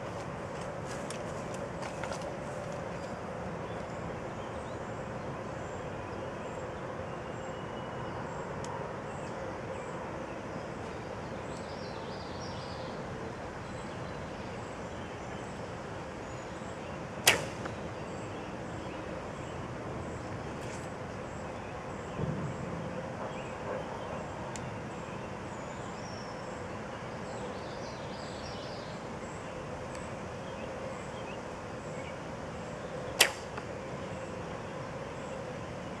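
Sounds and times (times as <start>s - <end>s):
outdoor background noise: 0.0s - 36.0s
bowstring snapping on release: 17.3s - 17.8s, 33.2s - 33.7s.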